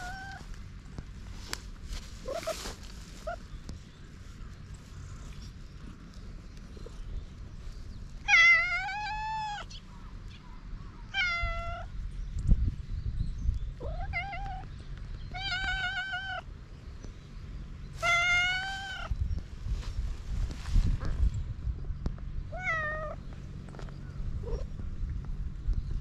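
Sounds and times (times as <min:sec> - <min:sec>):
cat meowing: 0:08.3 - 0:09.7, 0:11.1 - 0:11.9, 0:13.8 - 0:14.7, 0:18.0 - 0:19.1, 0:22.6 - 0:23.2.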